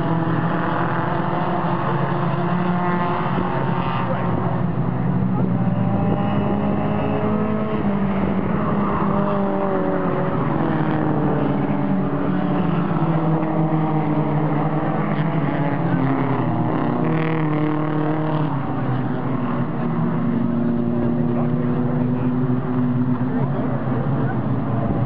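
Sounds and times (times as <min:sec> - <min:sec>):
race car engines: 0:00.0 - 0:25.0.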